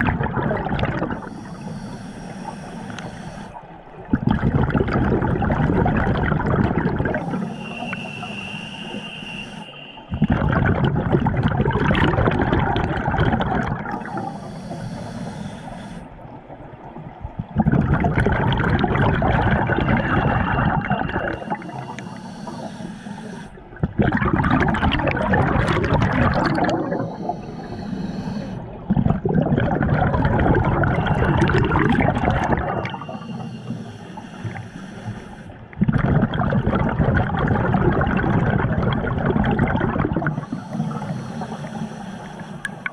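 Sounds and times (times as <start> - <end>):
exhaled bubbles rushing: 0.0 - 1.6, 3.9 - 9.1, 10.0 - 14.3, 16.4 - 22.6, 23.5 - 33.5, 35.7 - 41.1
regulator inhale hiss: 1.2 - 3.7, 7.1 - 10.2, 13.9 - 16.2, 20.9 - 23.7, 26.7 - 28.8, 32.8 - 35.7, 40.2 - 42.9.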